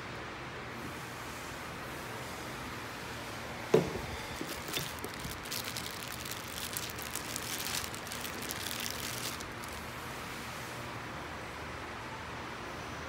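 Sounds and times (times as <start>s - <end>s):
plastic bag crinkling: 4.3s - 9.9s.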